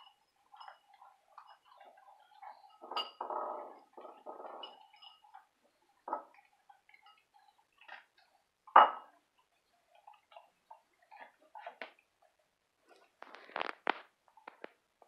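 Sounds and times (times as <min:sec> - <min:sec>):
dog eating from bowl: 0:00.0 - 0:14.8
bowl knocking on tile: 0:02.8 - 0:04.7, 0:08.7 - 0:09.1.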